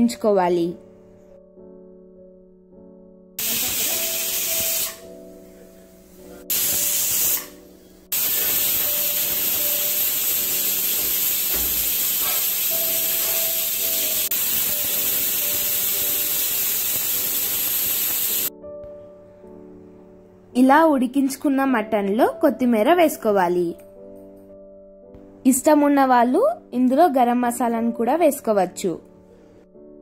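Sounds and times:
pressure cooker whistle hissing: 0:03.4 - 0:05.1, 0:06.5 - 0:18.5.

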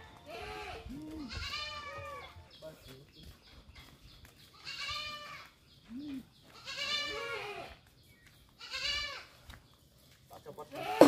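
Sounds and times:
goats bleating: 0:00.2 - 0:02.4, 0:04.6 - 0:05.5, 0:06.6 - 0:07.8, 0:08.6 - 0:09.4, 0:10.6 - 0:11.0.

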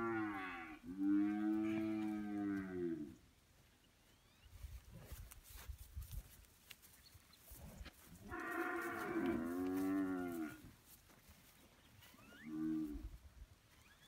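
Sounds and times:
young bull mooing: 0:00.0 - 0:03.2, 0:08.3 - 0:10.6.

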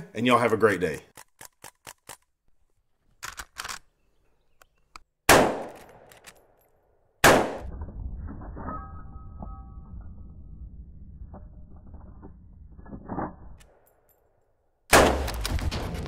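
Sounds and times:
loud rifle shots ringing: 0:05.3 - 0:05.8, 0:07.2 - 0:07.7.

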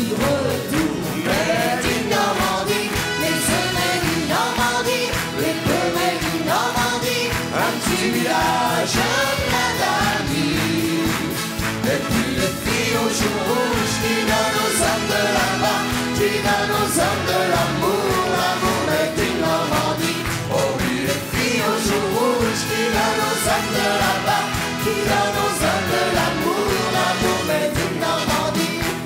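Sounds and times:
man singing: 0:00.0 - 0:04.4, 0:07.5 - 0:29.0
woman singing: 0:00.0 - 0:11.3
live band playing chanson: 0:00.0 - 0:29.0.

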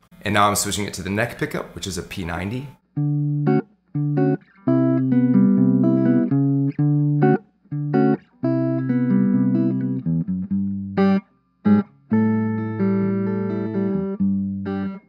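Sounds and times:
clean electric guitar chords: 0:03.0 - 0:15.0.

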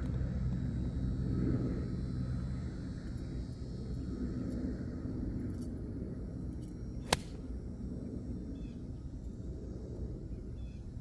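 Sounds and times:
low background rumble: 0:00.0 - 0:11.0
golf club striking ball: 0:07.0 - 0:07.4.

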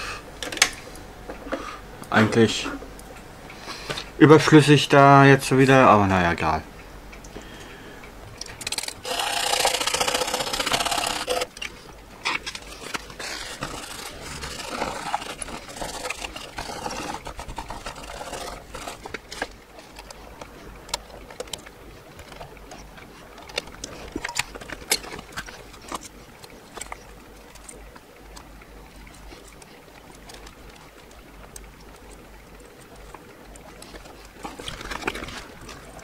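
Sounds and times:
tissue rubbing on circuit board: 0:12.3 - 0:20.0.

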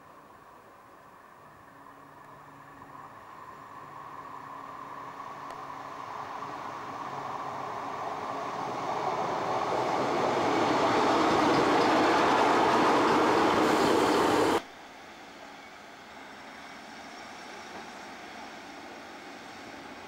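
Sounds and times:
diesel train passing: 0:00.1 - 0:20.0
wheels on rails: 0:05.2 - 0:14.6.

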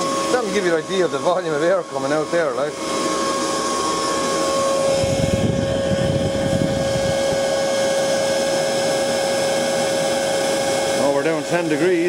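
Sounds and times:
leaf blower running: 0:00.0 - 0:12.0
low rumbling: 0:04.4 - 0:07.5.

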